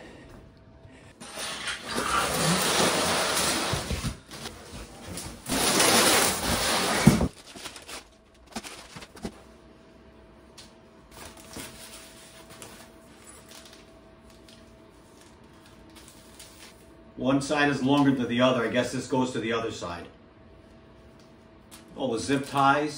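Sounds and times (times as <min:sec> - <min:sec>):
cardboard box scraping: 0:01.7 - 0:08.0
paper rustling: 0:01.8 - 0:09.4, 0:11.1 - 0:16.8.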